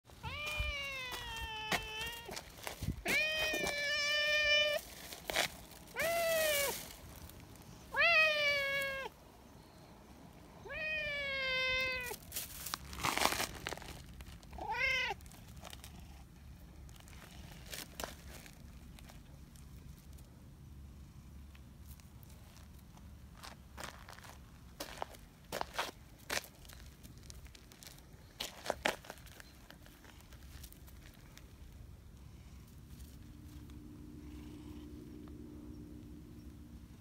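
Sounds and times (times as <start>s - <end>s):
cat meowing: 0.2s - 4.8s, 5.9s - 6.8s, 7.9s - 9.1s, 10.6s - 12.2s, 14.6s - 15.2s.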